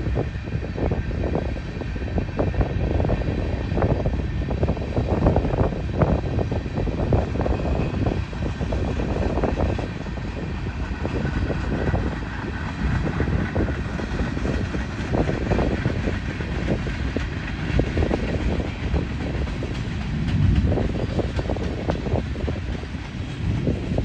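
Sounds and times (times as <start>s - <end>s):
train wheels rumbling on rails: 0.0s - 24.0s
wheels clicking over rail joints: 5.6s - 24.0s.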